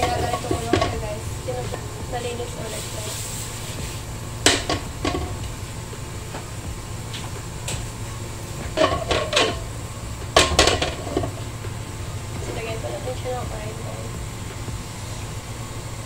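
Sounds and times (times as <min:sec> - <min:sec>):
utensils knocking against wok: 0:00.0 - 0:01.1, 0:04.4 - 0:05.5, 0:08.6 - 0:09.7, 0:10.3 - 0:11.4
steady low hum: 0:00.0 - 0:16.0.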